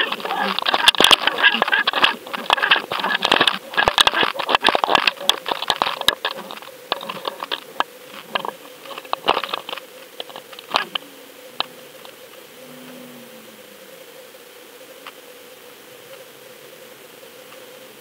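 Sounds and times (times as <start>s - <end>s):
sharp clicks and crackles underwater: 0.0s - 12.4s
faint steady hum: 0.0s - 18.0s.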